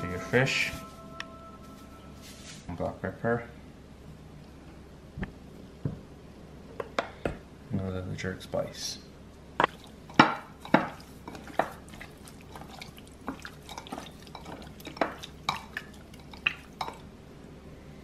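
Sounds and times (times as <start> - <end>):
wet squelches of mixing fish: 9.6 - 17.1.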